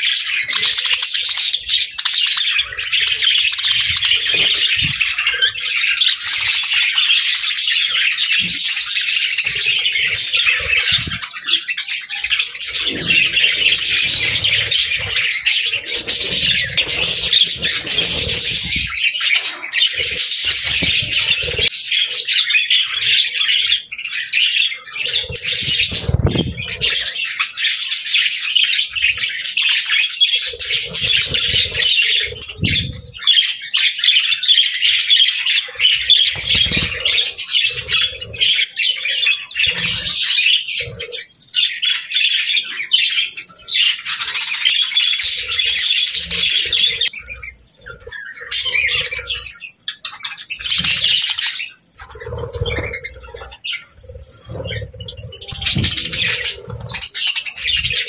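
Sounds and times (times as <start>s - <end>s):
budgerigars chattering and warbling: 0.0s - 58.0s
wings fluttering: 12.2s - 21.9s, 25.0s - 27.1s, 30.4s - 33.4s, 35.7s - 38.7s, 50.6s - 58.0s.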